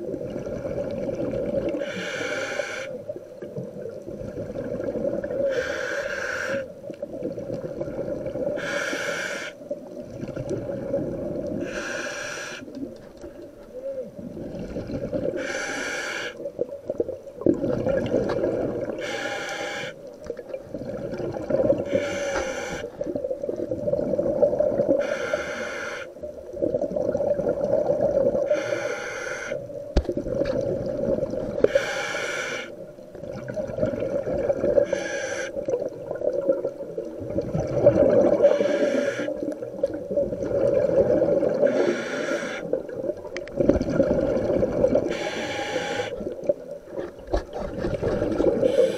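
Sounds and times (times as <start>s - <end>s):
exhaled air bubbling: 0.0s - 48.9s
regulator inhale hiss: 1.8s - 3.0s, 5.4s - 6.7s, 8.6s - 9.6s, 11.6s - 12.8s, 15.4s - 16.5s, 19.0s - 20.1s, 21.8s - 23.0s, 24.9s - 26.2s, 28.5s - 29.6s, 31.6s - 32.8s, 34.8s - 35.6s, 38.4s - 39.4s, 41.6s - 42.8s, 45.1s - 46.3s, 48.6s - 48.9s.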